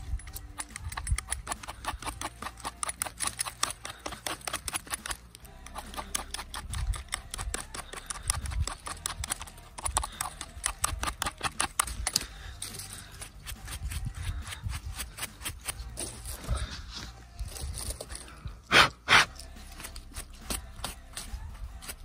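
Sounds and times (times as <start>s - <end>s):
knife scraping mushroom: 0.6s - 17.2s.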